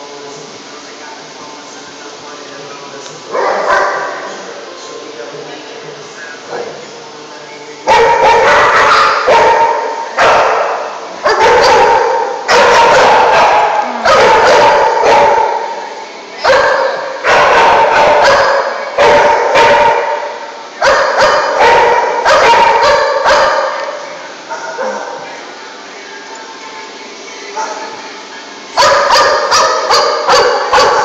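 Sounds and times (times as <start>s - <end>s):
small dogs barking and yipping: 7.9s - 15.6s, 16.4s - 20.2s, 20.8s - 23.8s, 28.8s - 31.0s.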